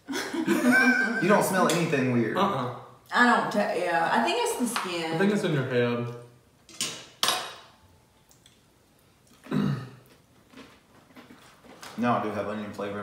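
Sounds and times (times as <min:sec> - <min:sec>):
tableware clattering: 0:06.7 - 0:07.8.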